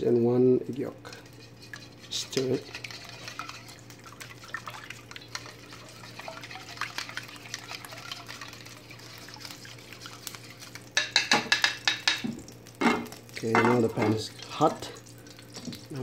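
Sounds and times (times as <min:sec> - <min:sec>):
eggs being beaten in a bowl: 0:00.1 - 0:12.4.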